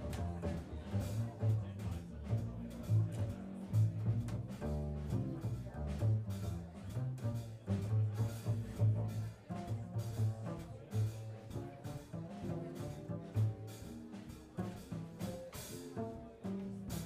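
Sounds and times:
drum kit: 0:00.0 - 0:17.0
jazz guitar: 0:00.0 - 0:17.0
plucked double bass: 0:00.0 - 0:17.0.

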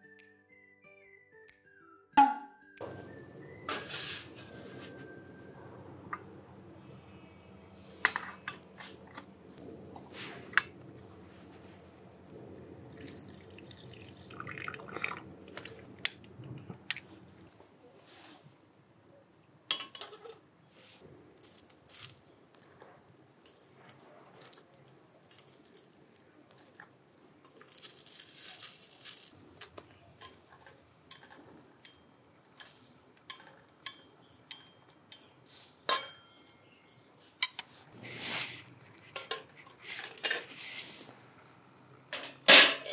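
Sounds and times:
chopsticks on iron griddle: 0:03.7 - 0:04.9, 0:27.5 - 0:36.6, 0:37.4 - 0:41.1
cooking gear clinking: 0:42.1 - 0:42.9.

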